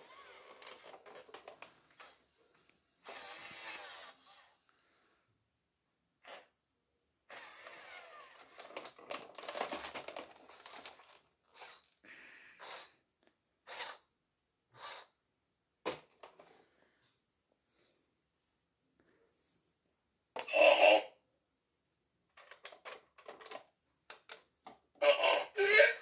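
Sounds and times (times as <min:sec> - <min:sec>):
toy robot motors whirring: 0:00.0 - 0:01.2, 0:03.0 - 0:04.5, 0:06.2 - 0:06.5, 0:07.3 - 0:12.0, 0:12.6 - 0:12.9, 0:13.6 - 0:14.1, 0:14.8 - 0:15.2.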